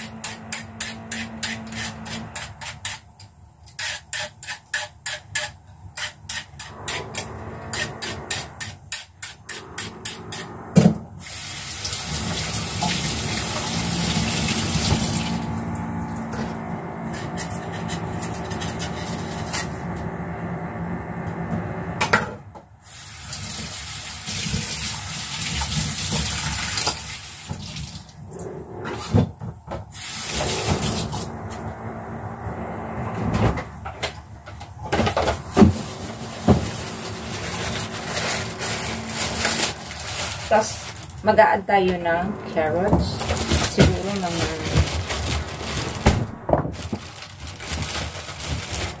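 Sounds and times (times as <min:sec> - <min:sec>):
kitchen faucet running: 0:11.2 - 0:19.5, 0:22.9 - 0:28.2, 0:30.0 - 0:31.4, 0:42.5 - 0:46.4.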